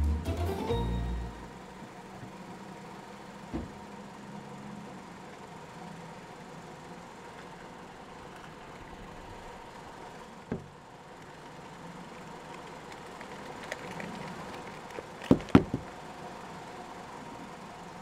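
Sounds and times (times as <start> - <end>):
thud: 3.5 - 3.8.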